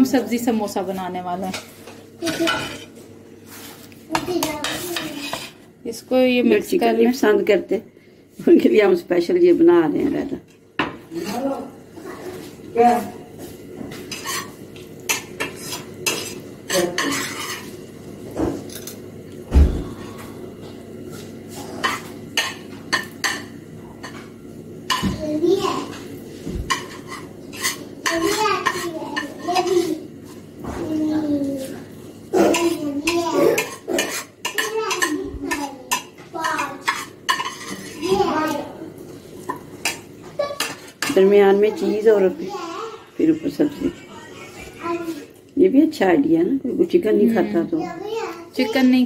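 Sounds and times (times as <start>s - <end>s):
plates and utensils clinking: 1.4s - 5.6s, 13.4s - 19.1s, 19.8s - 25.2s, 25.8s - 31.0s, 32.3s - 38.6s, 39.4s - 42.3s, 43.0s - 45.5s.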